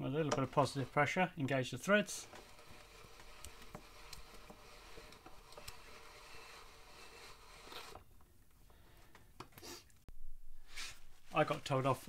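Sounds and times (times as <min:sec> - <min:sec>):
socket ticking and scraping: 0:00.0 - 0:01.1, 0:02.0 - 0:08.1.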